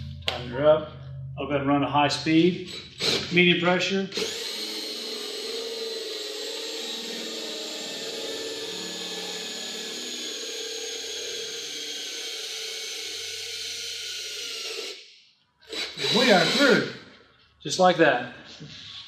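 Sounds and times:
cordless drill drilling fiberglass: 4.1s - 15.0s, 15.7s - 17.0s.

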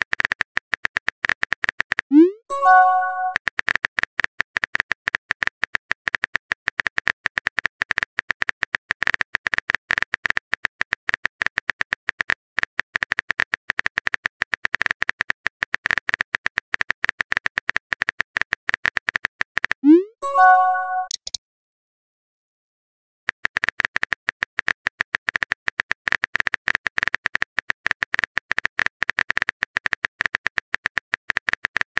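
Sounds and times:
keyboard key clicks: 20.9s - 21.4s.

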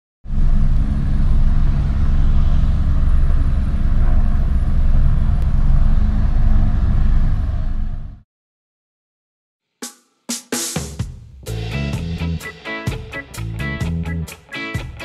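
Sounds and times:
low rumble with deep hum: 0.3s - 8.2s.

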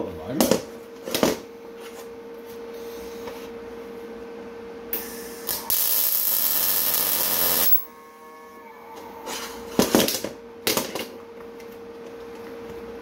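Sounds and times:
steady hum: 0.0s - 13.0s
welding arc: 5.0s - 7.9s.

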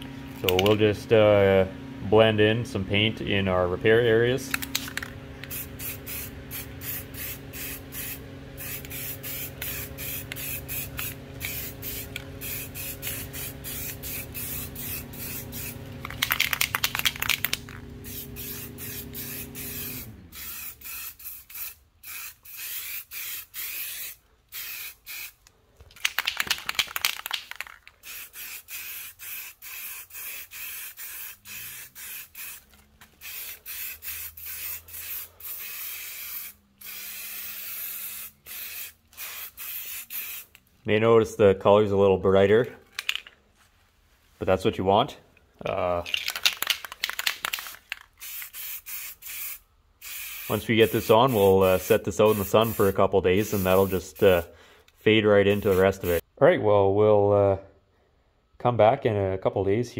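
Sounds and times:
steady low hum: 0.0s - 26.1s, 27.5s - 56.4s
spray can hissing: 4.5s - 25.4s, 26.0s - 40.6s, 46.2s - 54.5s, 55.4s - 56.2s.

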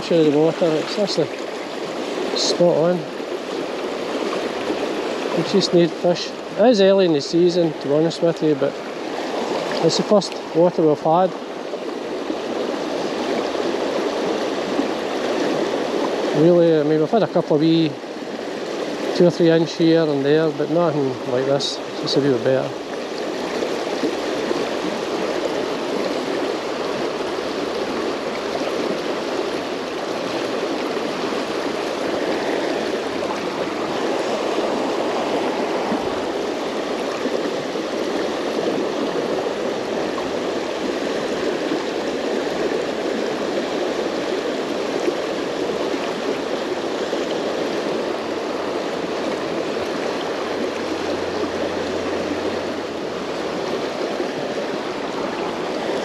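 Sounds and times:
river water rushing over rocks: 0.0s - 56.0s.

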